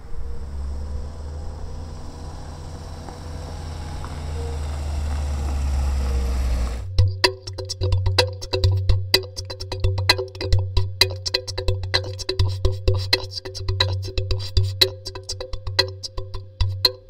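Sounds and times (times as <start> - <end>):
low rumble: 0.0 - 12.0
percussive music: 6.1 - 17.0
wood-block-like clicks: 6.8 - 17.0.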